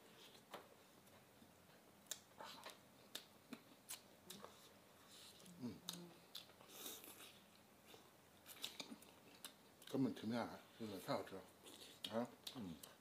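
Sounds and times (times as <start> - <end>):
chewing smacks: 5.8 - 10.0.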